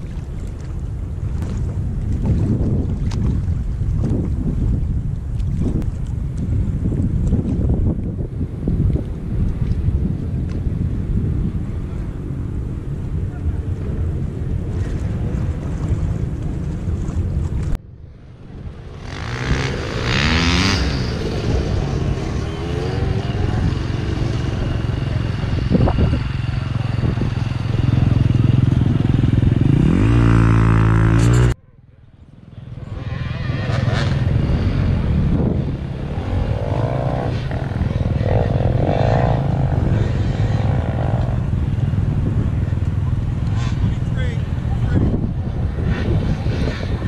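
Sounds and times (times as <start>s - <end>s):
off-road vehicle engines running: 0.0s - 47.0s
engine revving with rising whine: 18.8s - 31.6s, 32.6s - 41.9s.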